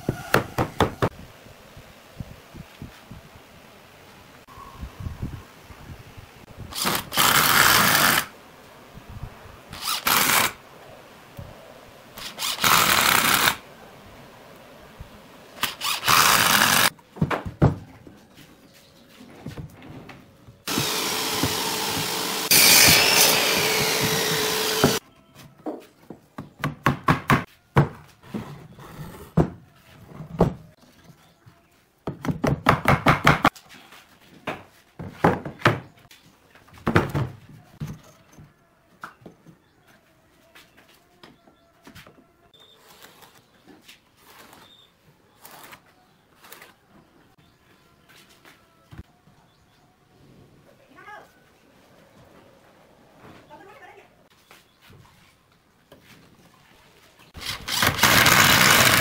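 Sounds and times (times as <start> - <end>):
cordless drill driving screws: 9.8 - 10.6, 12.2 - 13.6, 15.6 - 16.9, 20.7 - 25.0, 57.4 - 59.0
power tool running: 15.6 - 16.9, 20.7 - 25.0, 57.4 - 59.0.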